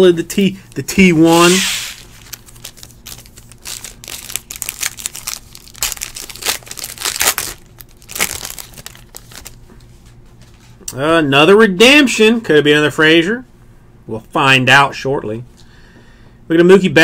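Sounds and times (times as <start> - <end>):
foil wrapper crinkling and tearing: 1.4 - 9.6.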